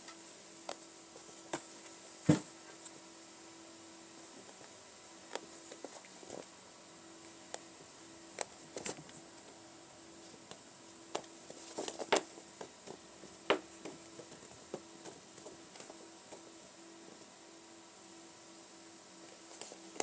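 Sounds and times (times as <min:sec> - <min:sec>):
kittens scampering on carpet: 0:10.2 - 0:16.5.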